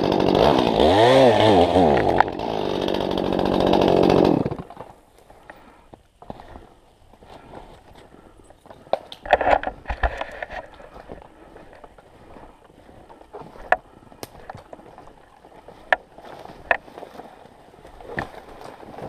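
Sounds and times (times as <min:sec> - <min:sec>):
trampling and brushing branches: 0:03.4 - 0:19.0
twigs snapping: 0:08.8 - 0:12.0, 0:13.5 - 0:17.2
footsteps crunching through snow: 0:09.8 - 0:19.0.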